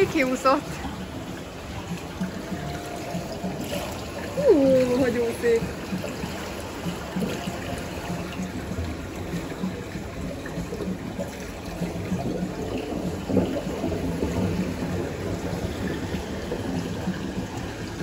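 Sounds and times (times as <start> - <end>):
pool water sloshing: 0.0 - 18.0.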